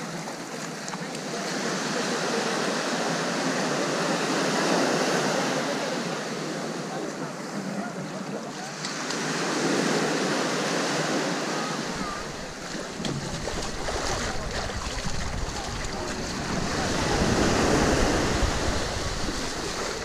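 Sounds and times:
small waves washing onto sand: 0.0 - 20.0
wind rumbling on microphone: 11.9 - 20.0.

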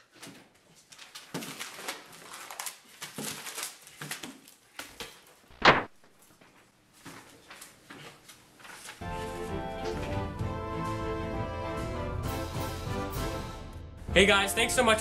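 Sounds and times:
loud thump: 5.6 - 6.0.

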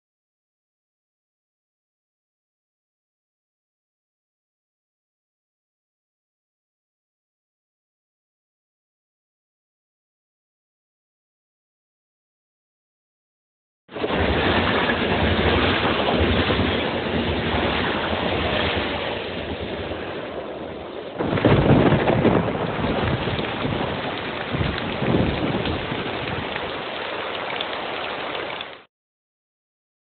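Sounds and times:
dense rushing noise: 13.9 - 28.3.

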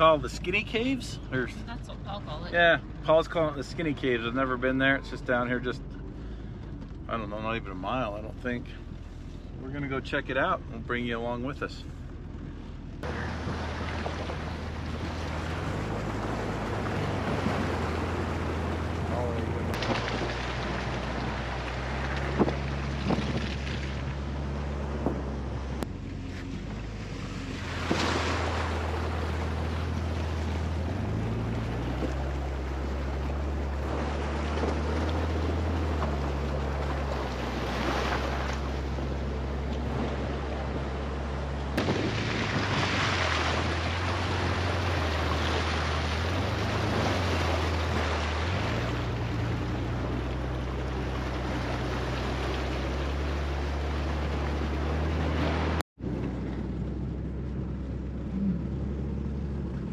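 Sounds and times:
car engine at crawling speed: 0.0 - 59.9
tires splashing through river: 0.0 - 59.9
wind buffeting microphone: 13.0 - 24.3, 41.8 - 45.6.

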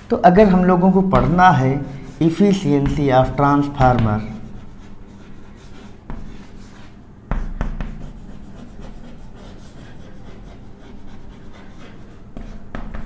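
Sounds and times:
sharp chalk tap: 1.1 - 5.2, 6.0 - 9.2, 11.1 - 13.0
chalk scraping on blackboard: 1.2 - 13.0.

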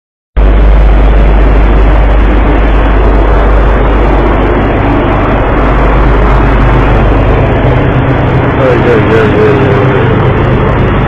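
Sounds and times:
dense rushing noise: 0.4 - 11.0
ship engine humming: 0.4 - 11.0.

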